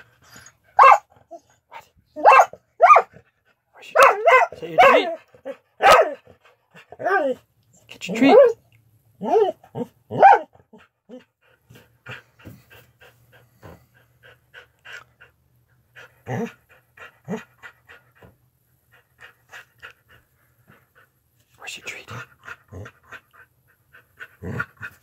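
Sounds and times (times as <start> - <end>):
dog panting: 0.0 - 2.0, 10.5 - 25.0
low dog grunts: 16.1 - 16.6, 24.2 - 25.0.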